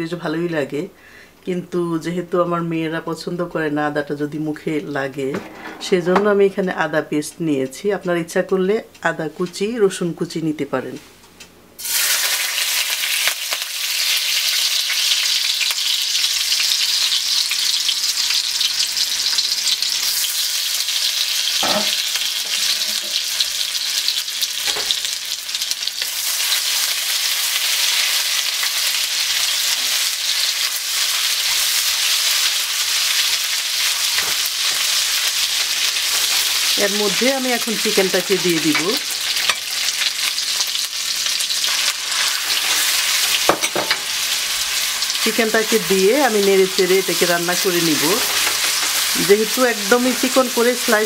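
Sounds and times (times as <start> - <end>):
garlic sizzling in hot oil: 11.8 - 51.0.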